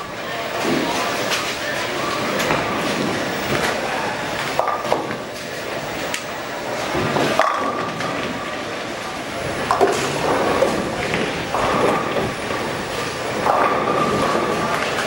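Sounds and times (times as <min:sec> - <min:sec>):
rumble and clatter of bowling lanes: 0:00.0 - 0:15.0
bowling ball rolling: 0:00.5 - 0:15.0
bowling pins crashing: 0:06.8 - 0:08.6, 0:09.4 - 0:15.0.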